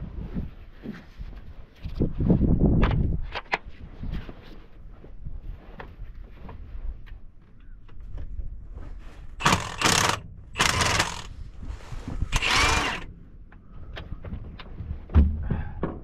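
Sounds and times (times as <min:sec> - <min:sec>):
socket ratchet clicking: 0:09.4 - 0:11.3, 0:12.3 - 0:13.0.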